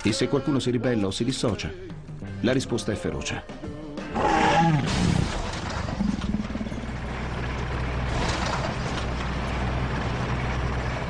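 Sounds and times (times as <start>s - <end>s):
vehicle humming: 4.5s - 11.0s.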